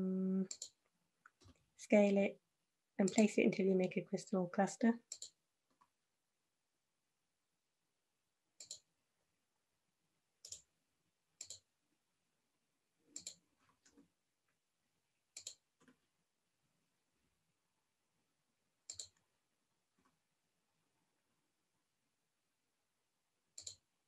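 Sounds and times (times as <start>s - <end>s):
mouse and keyboard clicks: 0.5s - 1.6s, 5.1s - 5.9s, 8.6s - 8.9s, 10.4s - 10.7s, 11.4s - 11.6s, 13.2s - 14.0s, 15.4s - 16.0s, 18.9s - 19.2s, 23.6s - 23.8s.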